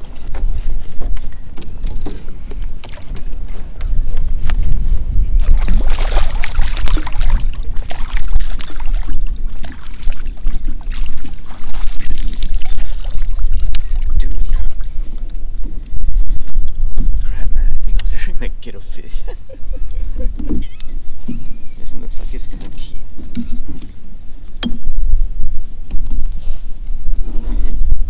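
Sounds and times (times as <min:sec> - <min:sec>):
fish splashing in water: 0:05.4 - 0:14.7.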